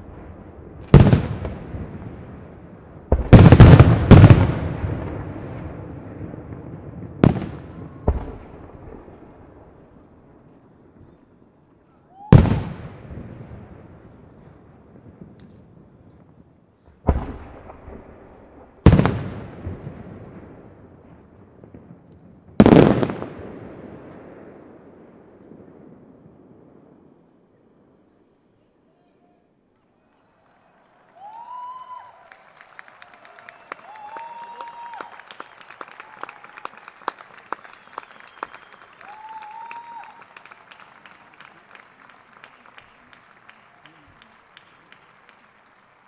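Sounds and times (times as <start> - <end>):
distant crowd applauding: 29.8 - 46.0
long whistle: 37.5 - 40.2.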